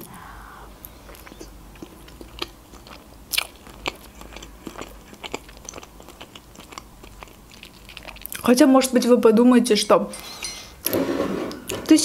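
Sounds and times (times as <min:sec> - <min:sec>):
person chewing food: 0:00.8 - 0:08.5.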